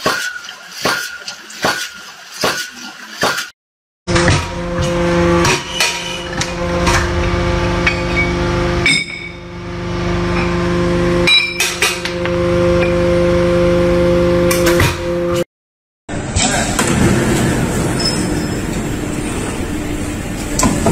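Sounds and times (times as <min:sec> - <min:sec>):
forging press humming: 0:04.1 - 0:15.4.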